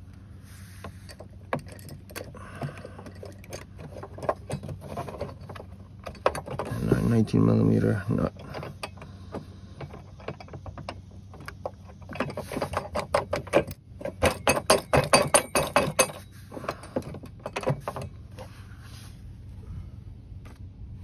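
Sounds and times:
metal bracket rattling: 0.9s - 18.5s
metallic clicking and clinking: 8.2s - 18.1s.

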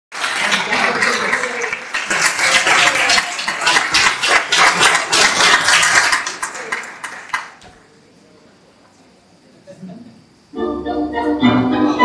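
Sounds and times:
audience applauding: 0.1s - 7.8s.

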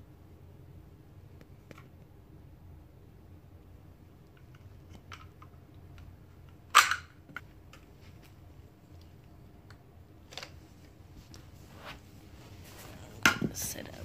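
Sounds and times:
plastic toy blocks clacking: 6.7s - 7.2s.

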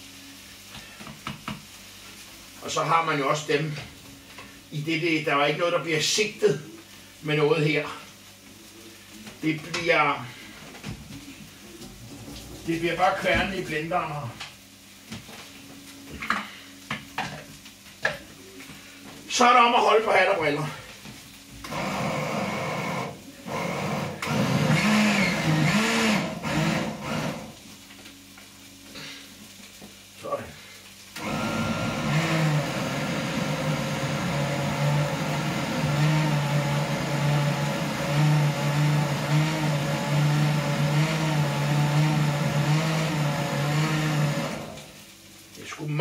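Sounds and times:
blender motor running: 21.6s - 27.6s, 31.2s - 44.9s.

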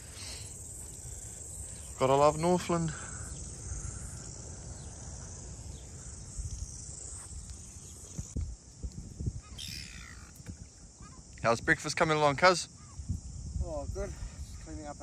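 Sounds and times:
insects chirring: 0.0s - 15.0s
bird call: 9.4s - 10.4s.

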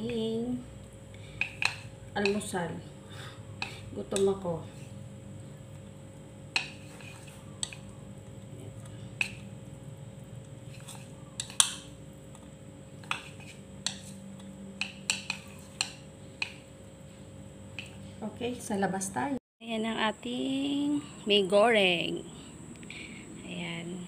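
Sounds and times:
chopsticks clicking against bowl: 7.6s - 7.9s, 10.4s - 13.2s, 13.8s - 16.6s.

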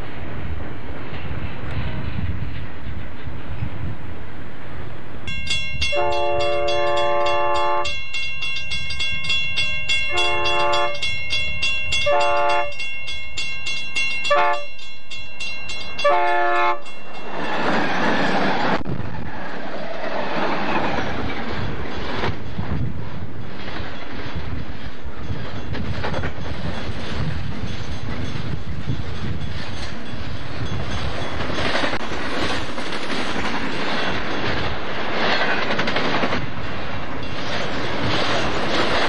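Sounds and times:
train wheels rumbling: 0.0s - 39.0s
locomotive air horn blasts: 5.9s - 8.0s, 10.1s - 11.1s, 12.0s - 12.8s, 14.3s - 14.8s, 16.0s - 16.9s.

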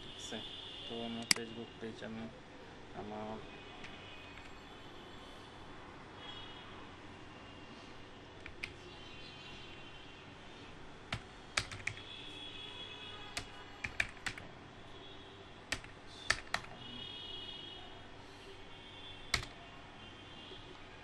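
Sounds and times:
faint background noise: 0.0s - 21.0s
keyboard keystrokes: 11.1s - 12.0s, 13.4s - 14.4s, 19.3s - 19.5s.

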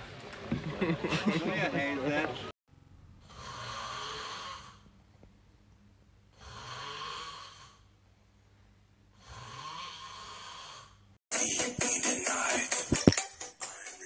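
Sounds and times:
man snoring: 3.2s - 4.9s, 6.3s - 7.9s, 9.1s - 11.1s.

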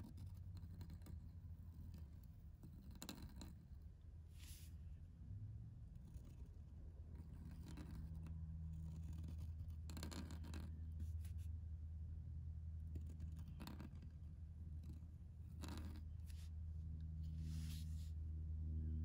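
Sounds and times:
pen nib scratching on paper: 0.0s - 3.8s, 5.9s - 11.5s, 12.8s - 16.5s
steady low hum: 0.0s - 19.0s.

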